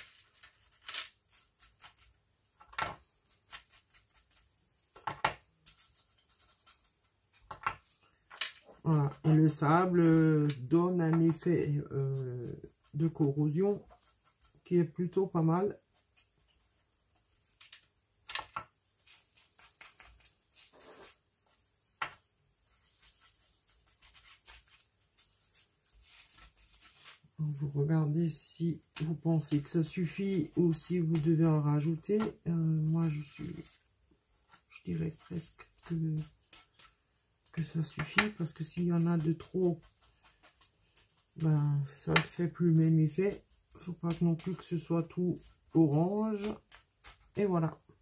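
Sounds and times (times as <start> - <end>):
fingertips rubbing on paper: 5.7 - 7.2, 11.9 - 15.0, 18.9 - 21.2, 22.6 - 27.2, 28.9 - 41.5.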